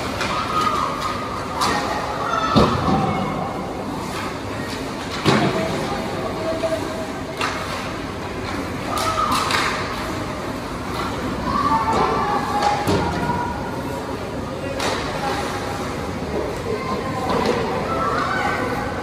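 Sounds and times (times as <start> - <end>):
hockey sticks and puck clacking: 0.0 - 3.1, 4.0 - 5.8, 7.3 - 10.1, 14.7 - 18.6.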